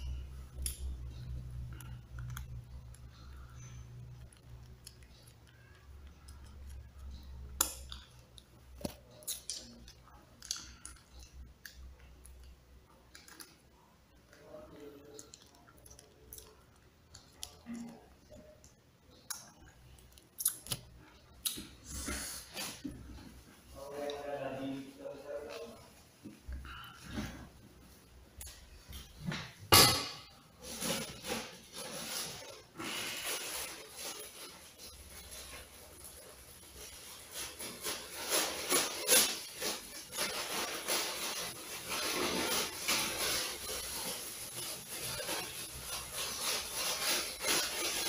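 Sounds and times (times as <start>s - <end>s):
plastic sachets crinkling: 30.7s - 48.0s.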